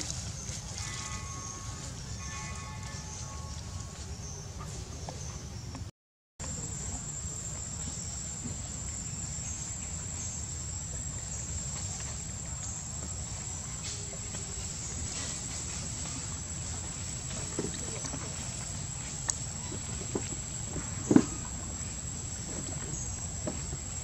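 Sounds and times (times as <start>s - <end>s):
insects droning high-pitched: 0.0s - 5.4s, 6.4s - 24.0s.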